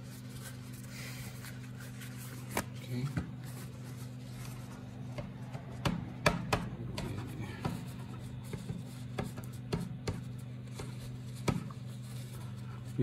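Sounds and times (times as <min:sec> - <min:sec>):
tissue rubbing on circuit board: 0:00.0 - 0:02.5, 0:10.3 - 0:13.0
steady low hum: 0:00.0 - 0:13.0.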